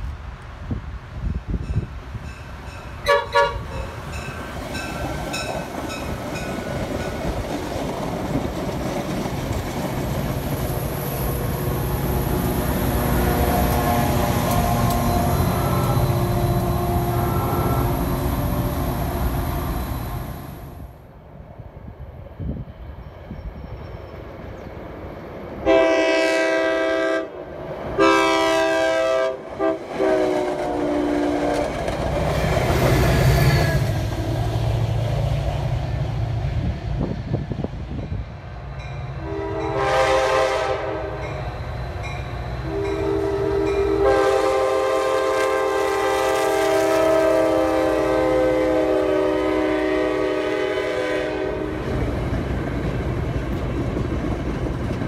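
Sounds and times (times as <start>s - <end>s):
train rumbling past: 0.0s - 55.0s
train horn blasts: 3.0s - 4.3s, 11.6s - 19.3s, 25.6s - 31.7s, 39.2s - 41.4s, 42.6s - 51.8s.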